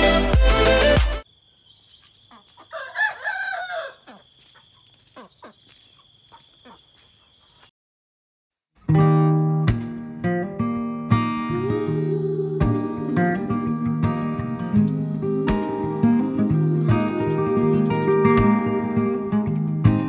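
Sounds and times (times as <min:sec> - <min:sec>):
rooster crowing: 0:02.6 - 0:04.3
acoustic guitar music: 0:08.8 - 0:20.0
high insect drone: 0:14.1 - 0:20.0.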